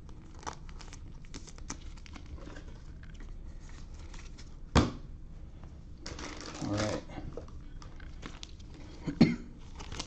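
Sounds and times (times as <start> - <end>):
plastic card sleeves crinkling: 0.0 - 4.5, 9.6 - 10.0
low steady hum: 0.0 - 10.0.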